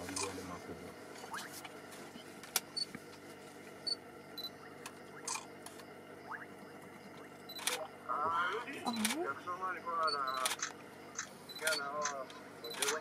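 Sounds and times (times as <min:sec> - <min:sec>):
faint steady background noise: 0:00.0 - 0:13.0
camera shutter clicks: 0:10.4 - 0:13.0.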